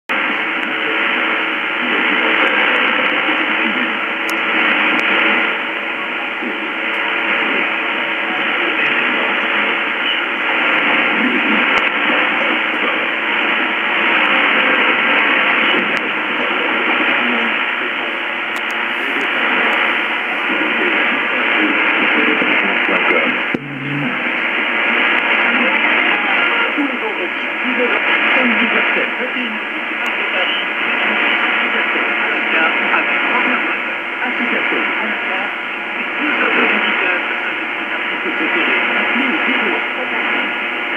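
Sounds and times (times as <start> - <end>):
faint radio programme audio: 0.1 - 40.9
radio hiss and static: 0.1 - 40.9.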